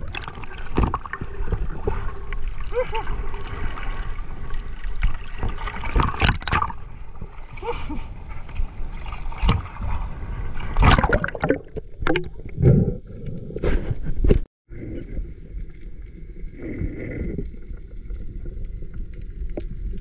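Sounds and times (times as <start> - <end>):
water sloshing and lapping: 0.0 - 12.8
loud splashes: 10.8 - 12.2.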